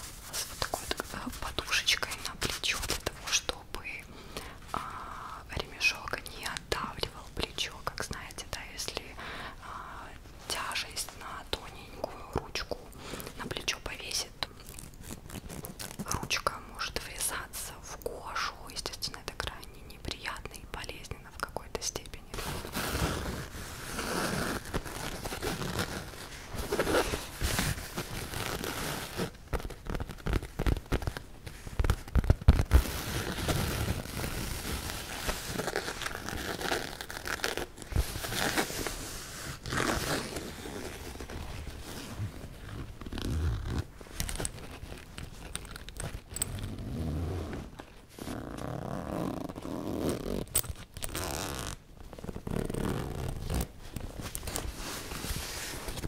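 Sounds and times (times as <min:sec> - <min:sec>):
fingernails scratching fabric bag: 0:22.5 - 0:31.0, 0:32.4 - 0:45.1.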